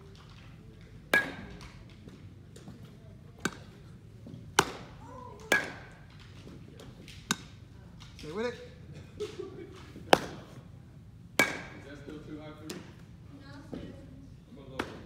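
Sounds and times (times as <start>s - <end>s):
baseball smacks: 1.1s - 2.2s, 3.4s - 7.6s, 10.0s - 10.6s, 11.3s - 11.9s, 14.8s - 15.0s.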